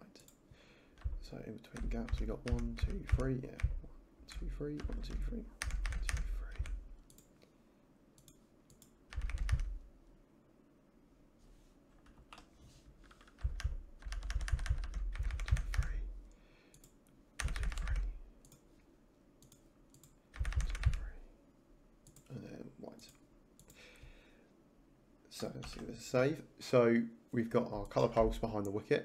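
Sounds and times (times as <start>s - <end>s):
keyboard typing: 1.0s - 7.3s, 8.2s - 9.8s, 12.0s - 16.0s, 16.7s - 18.6s, 19.4s - 21.1s.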